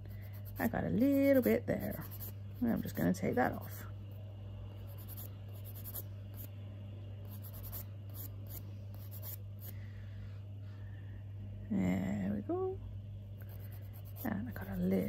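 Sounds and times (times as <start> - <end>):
steady low hum: 0.0 - 15.0
nail file scratching fingernail: 0.3 - 3.8, 4.9 - 6.5, 7.3 - 9.4, 13.5 - 15.0.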